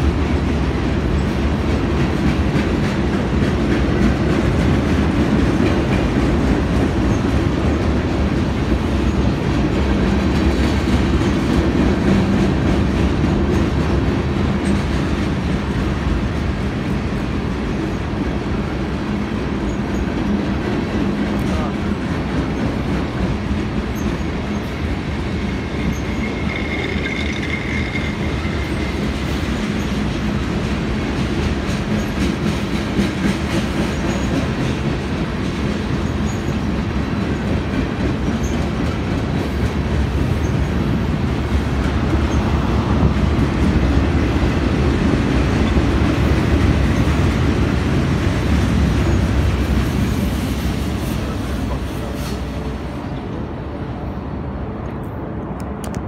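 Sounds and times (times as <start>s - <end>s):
train wheels rumbling on rails: 0.0s - 56.0s
train wheel squeal: 7.0s - 7.4s, 19.6s - 20.3s, 23.8s - 30.1s, 31.8s - 32.4s, 33.6s - 34.7s, 35.9s - 36.7s, 38.3s - 38.9s, 49.0s - 53.2s.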